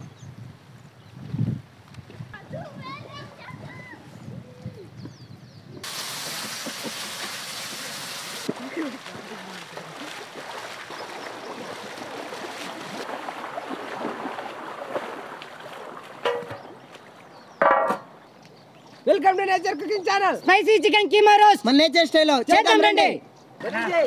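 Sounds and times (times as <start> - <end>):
patties sizzling in oil: 5.8 - 8.5
people wading through water: 5.8 - 17.6.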